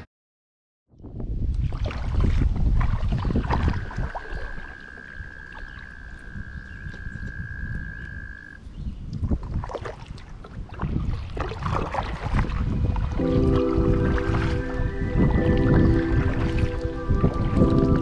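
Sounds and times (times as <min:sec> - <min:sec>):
wind rumble on microphone: 0:00.9 - 0:18.0
canoe paddle splashes and knocks: 0:01.5 - 0:05.8, 0:09.2 - 0:14.7, 0:15.4 - 0:18.0
frog trilling: 0:03.8 - 0:08.7.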